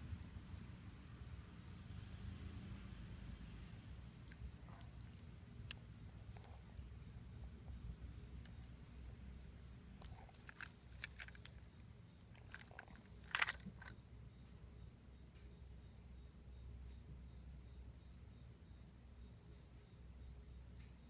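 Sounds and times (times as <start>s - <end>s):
crickets trilling: 0.0s - 21.0s
handling noise: 10.0s - 14.0s.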